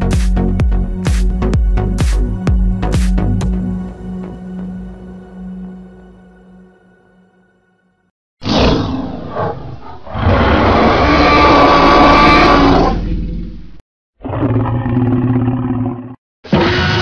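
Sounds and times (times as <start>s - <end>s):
dinosaur roar: 8.4s - 13.5s, 14.2s - 17.0s.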